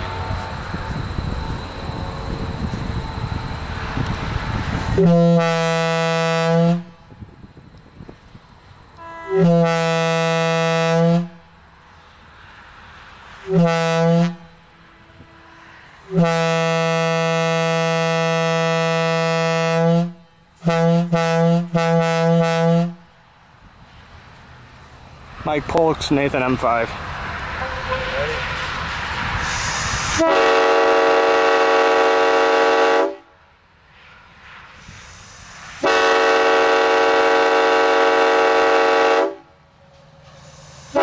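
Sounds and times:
locomotive air horn blasts: 0:04.9 - 0:07.1, 0:09.0 - 0:11.6, 0:13.4 - 0:23.1, 0:27.6 - 0:28.4, 0:30.1 - 0:33.3, 0:35.8 - 0:39.5.

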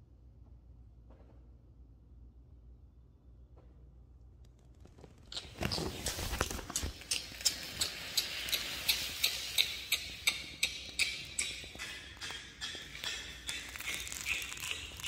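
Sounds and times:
steady hiss: 0:05.6 - 0:12.0.

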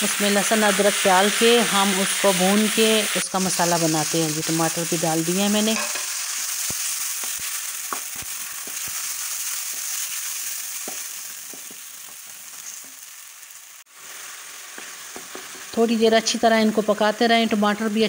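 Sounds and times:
tomatoes sizzling in hot oil: 0:00.0 - 0:18.0.

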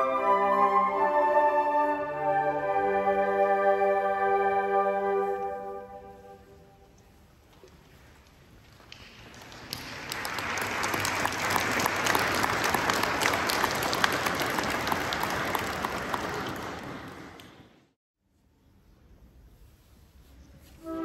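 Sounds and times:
audience applauding: 0:08.9 - 0:17.9.

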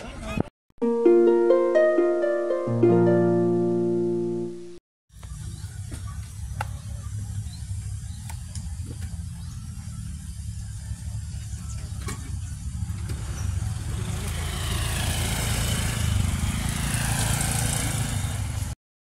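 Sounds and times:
motor scooter engine passing: 0:12.4 - 0:18.8.

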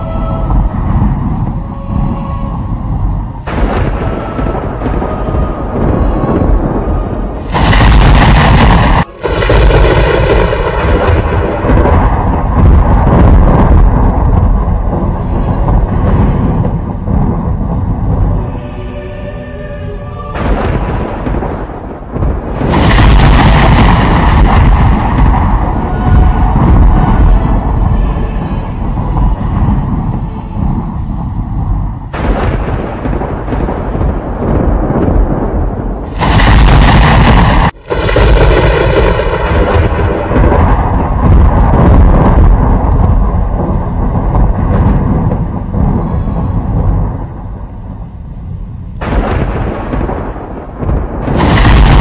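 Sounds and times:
rolling thunder: 0:00.0 - 0:52.0.

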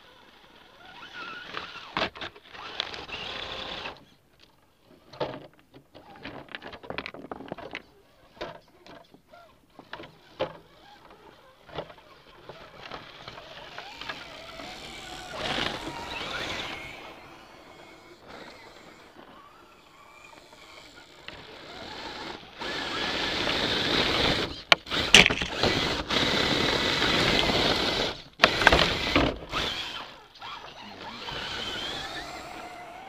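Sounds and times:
small electric motors whirring: 0:00.0 - 0:04.2, 0:07.9 - 0:33.0
plastic clattering on rock: 0:04.4 - 0:09.2, 0:24.5 - 0:26.0.

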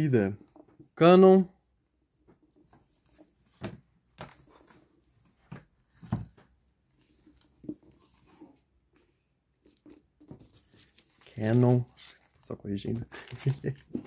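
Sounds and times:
book cover knocks and rubs: 0:03.5 - 0:04.8, 0:05.4 - 0:06.5.

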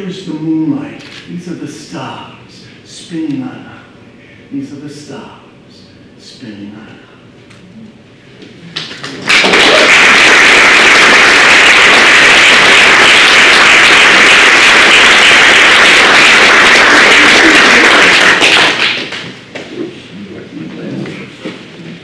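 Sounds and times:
audience applauding: 0:09.0 - 0:19.3.

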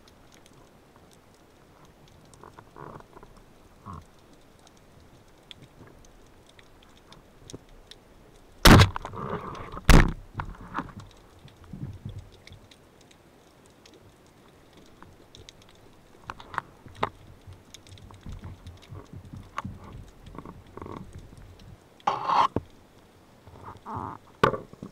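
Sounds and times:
underwater clicks and crackles: 0:00.0 - 0:24.9
speargun firing underwater: 0:08.6 - 0:09.1.

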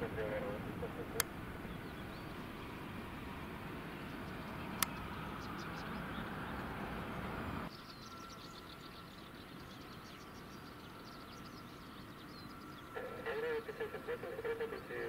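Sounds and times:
jet engines rushing: 0:00.0 - 0:07.8
birds chirping: 0:00.0 - 0:15.0
faint jet whine: 0:00.0 - 0:15.0.

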